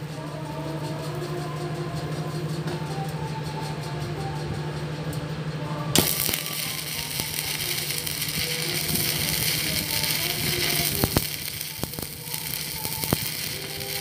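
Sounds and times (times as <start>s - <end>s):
steady low hum: 0.0s - 14.0s
welding arc crackling and hissing: 5.9s - 14.0s.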